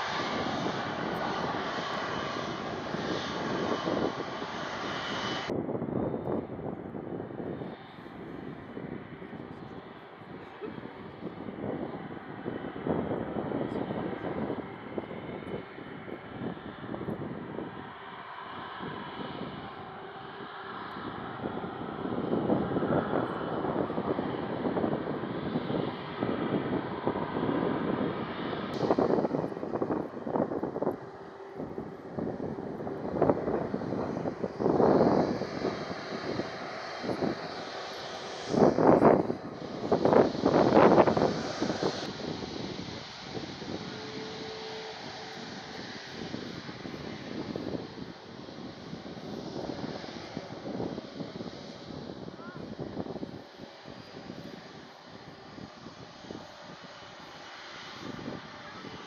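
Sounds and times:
jet engines rumbling: 0.0s - 59.0s
wind buffeting microphone: 0.0s - 59.0s.

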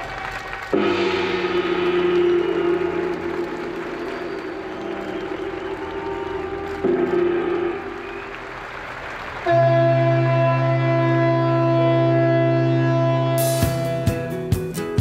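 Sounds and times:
gong struck and ringing: 0.7s - 8.4s
ship's horn blast: 0.7s - 14.1s.

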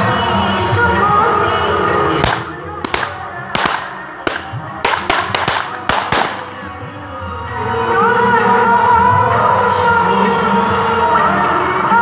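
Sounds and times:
faint music: 0.0s - 12.0s
firecrackers cracking: 2.2s - 6.6s.

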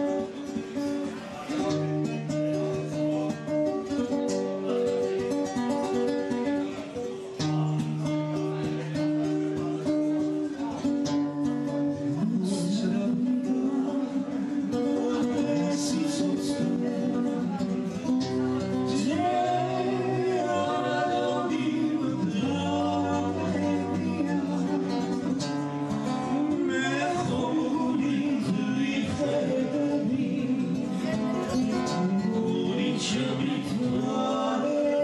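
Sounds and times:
acoustic guitar strummed and plucked: 0.0s - 35.0s
woman and man singing: 11.8s - 35.0s.

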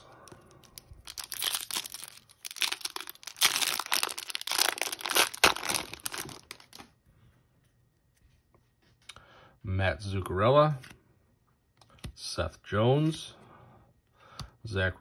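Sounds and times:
foil wrapper tearing and crinkling: 0.6s - 6.9s.

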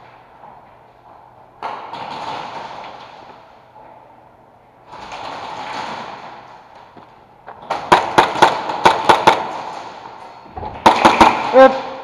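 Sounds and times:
airsoft guns firing: 7.7s - 10.1s, 10.8s - 11.8s.

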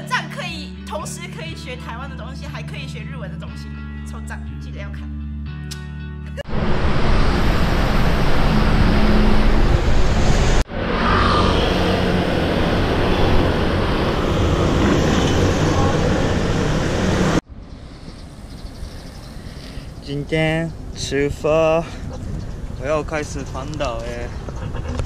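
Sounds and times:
city traffic: 6.4s - 25.0s
wind rushing: 6.5s - 20.0s.

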